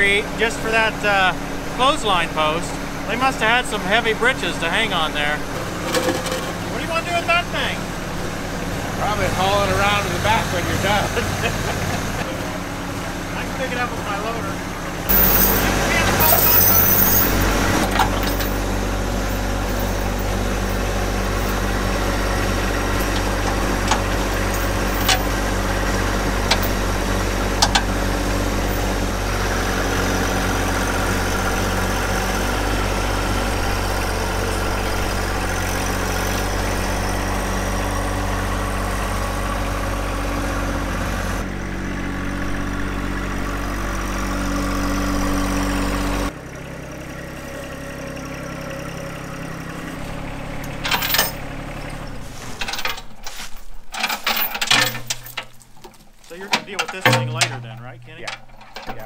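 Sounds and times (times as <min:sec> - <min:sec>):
tractor diesel engine running: 0:00.0 - 0:59.0
chain clinking: 0:15.1 - 0:21.7, 0:23.0 - 0:25.8, 0:26.4 - 0:26.9, 0:28.5 - 0:29.0, 0:50.8 - 0:51.4, 0:52.6 - 0:55.9.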